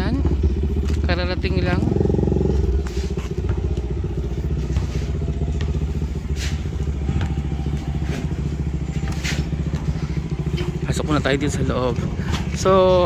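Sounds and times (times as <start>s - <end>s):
small engine idling fast: 0.0s - 13.0s.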